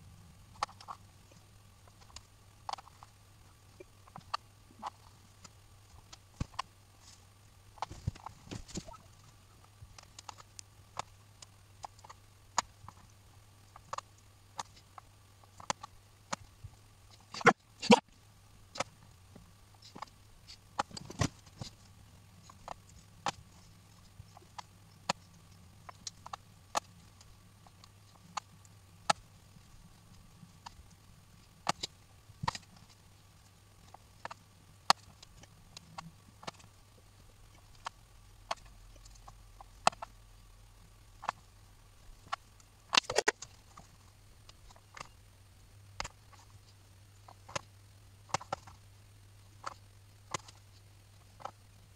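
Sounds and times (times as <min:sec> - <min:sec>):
faint low hum: 0:00.0 - 0:51.9.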